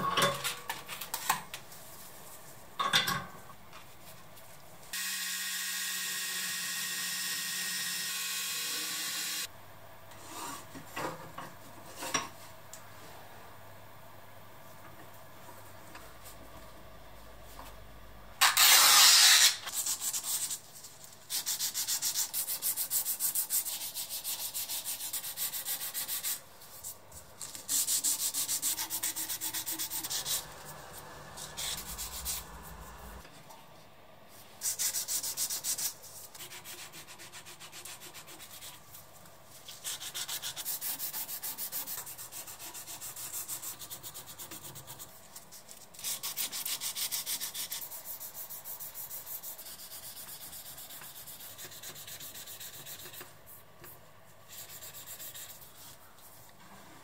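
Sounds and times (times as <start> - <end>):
sanding with abrasive paper: 54.5 - 55.9.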